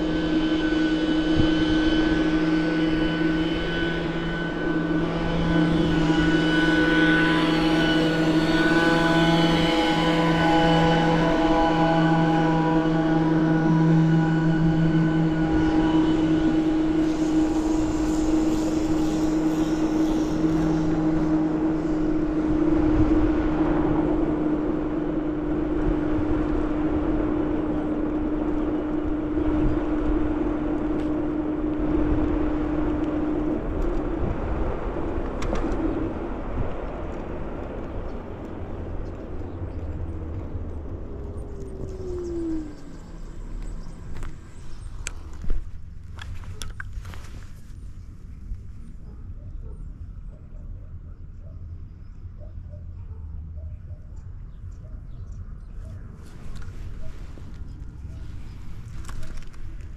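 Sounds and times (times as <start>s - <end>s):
steady low hum: 0.0s - 59.9s
wind and road noise: 0.0s - 59.9s.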